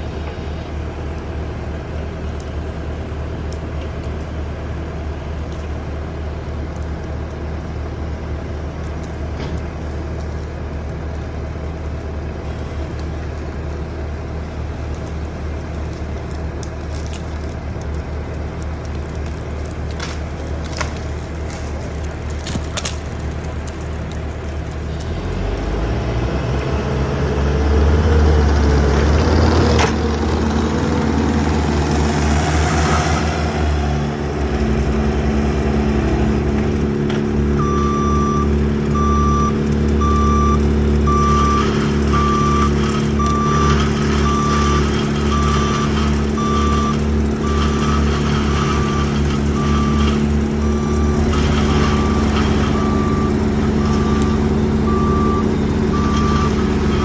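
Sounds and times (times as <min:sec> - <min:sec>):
diesel engine running: 0:00.0 - 0:57.0
reversing alarm beeping: 0:37.6 - 0:57.0.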